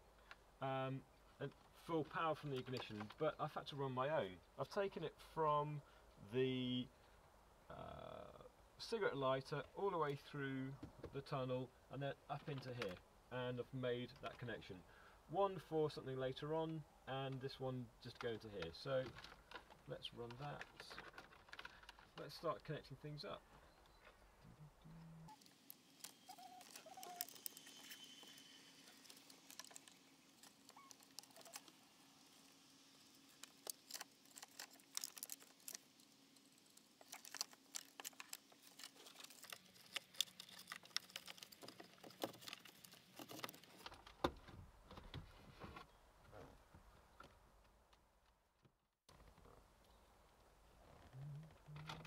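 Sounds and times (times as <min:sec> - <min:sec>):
plastic connectors clicking: 0:33.3 - 0:35.9, 0:36.7 - 0:44.1.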